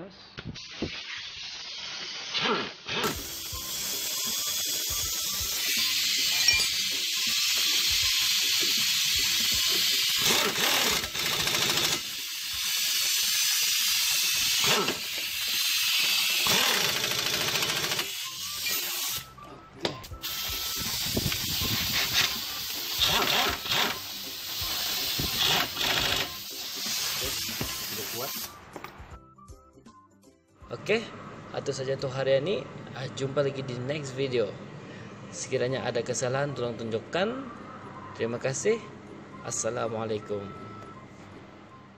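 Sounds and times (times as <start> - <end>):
compressed air hissing: 0.6 - 19.3, 20.1 - 28.6
impact wrench bursts: 3.0 - 19.3, 20.2 - 28.5.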